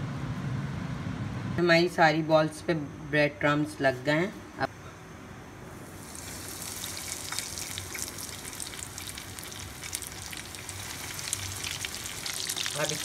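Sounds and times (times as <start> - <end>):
oil sizzling and crackling: 5.8 - 13.0.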